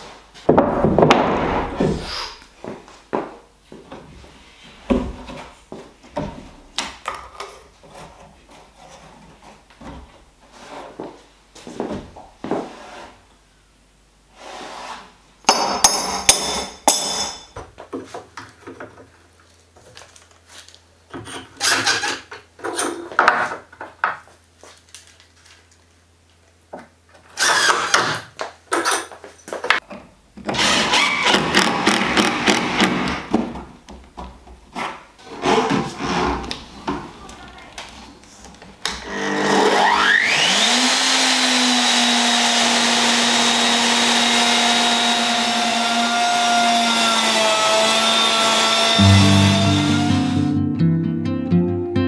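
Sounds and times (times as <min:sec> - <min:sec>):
cordless drill driving screws: 0:27.4 - 0:28.0, 0:30.5 - 0:33.2, 0:39.0 - 0:47.4.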